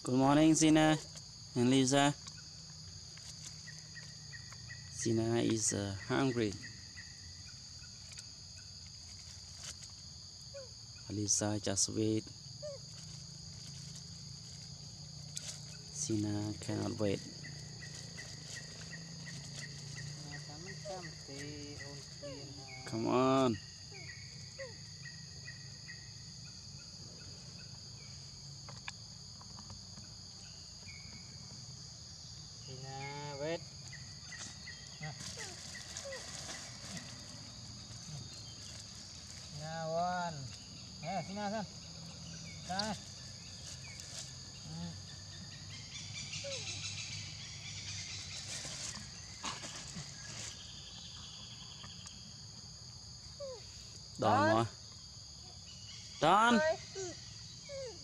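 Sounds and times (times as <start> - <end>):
high insect drone: 0.0 - 58.0
short squeaky calls: 34.3 - 38.9, 45.7 - 50.6
soft rustling: 34.3 - 39.6, 42.6 - 44.7, 47.9 - 50.8.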